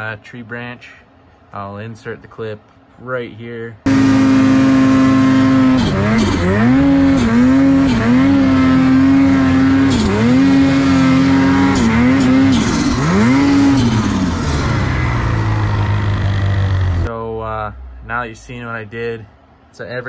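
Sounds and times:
snowmobile engine at high revs: 3.9s - 17.1s.

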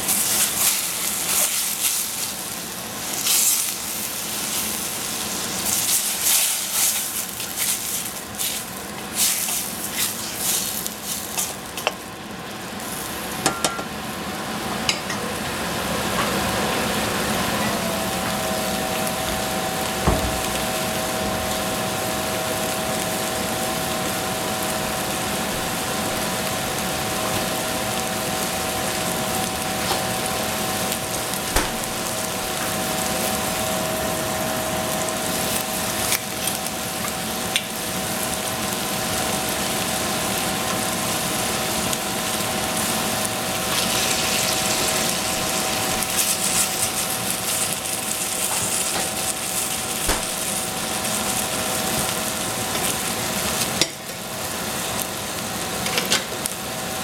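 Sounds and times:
food sizzling in a pan: 0.0s - 57.0s
steady hum: 12.7s - 38.3s.

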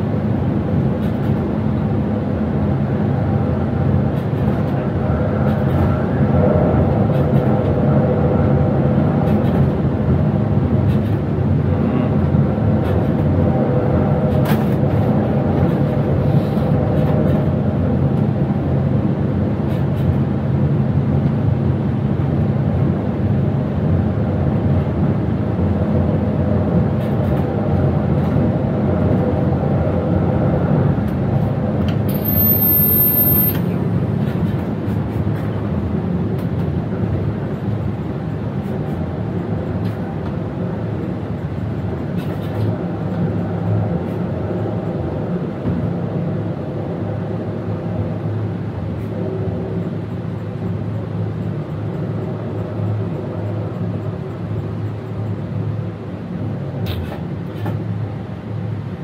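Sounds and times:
train wheels rumbling on rail: 0.0s - 59.0s
very high-pitched tone: 32.1s - 33.7s.

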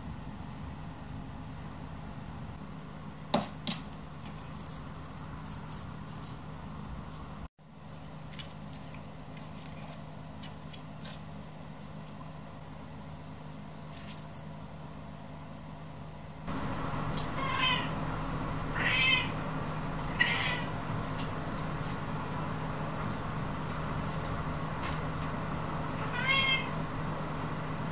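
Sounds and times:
cat meowing: 17.3s - 18.0s, 18.7s - 19.4s, 20.1s - 20.7s, 26.0s - 26.8s.

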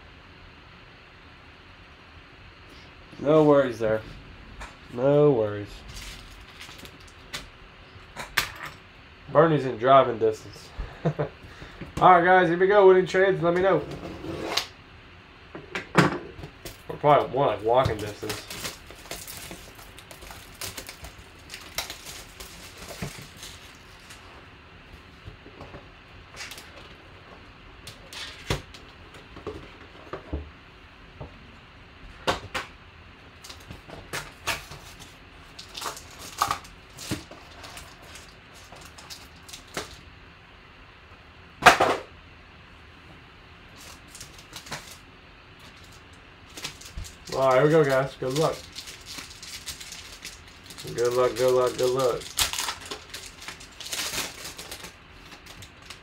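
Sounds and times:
wrapper and cardboard crinkling: 5.6s - 7.4s, 16.7s - 24.3s, 33.4s - 40.0s, 43.7s - 56.0s.

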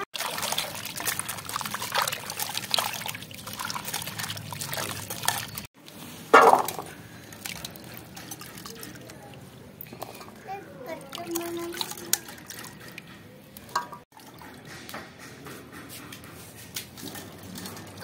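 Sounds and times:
water dripping and trickling: 0.0s - 6.0s, 6.6s - 14.7s, 16.8s - 18.0s
hands swishing vegetables in water: 0.0s - 9.4s, 11.0s - 13.0s
water splashing and sloshing: 0.0s - 18.0s.

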